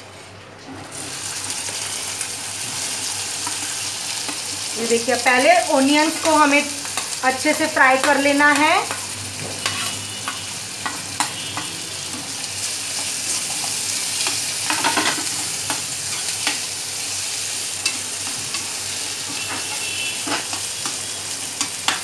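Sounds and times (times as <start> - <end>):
onions sizzling in hot oil: 0.9 - 22.0
metal spatula scraping pan: 8.9 - 11.7.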